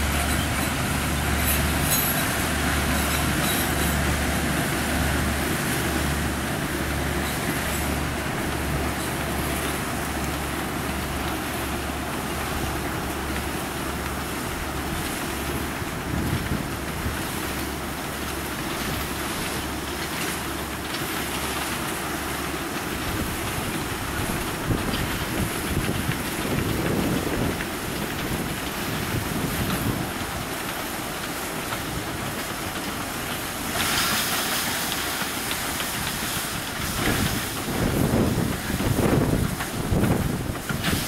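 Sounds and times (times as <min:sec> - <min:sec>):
diesel locomotives humming: 0:00.0 - 0:41.0
empty bins rumbling on rails: 0:00.0 - 0:41.0
wind buffeting microphone: 0:22.9 - 0:30.5, 0:35.9 - 0:41.0.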